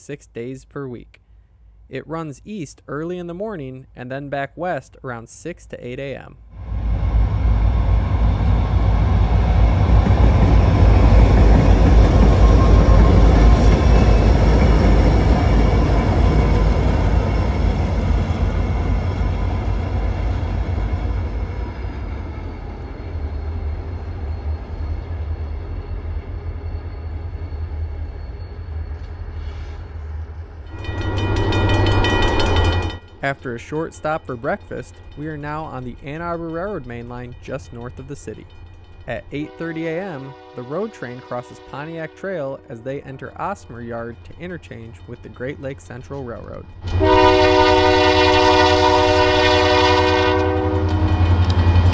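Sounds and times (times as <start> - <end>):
diesel locomotives passing by: 6.5 - 51.9.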